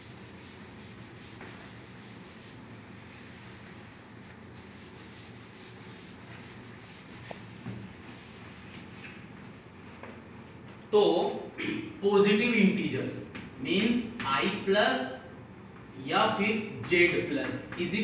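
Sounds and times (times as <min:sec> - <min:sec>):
duster rubbing chalkboard: 0:00.0 - 0:09.2.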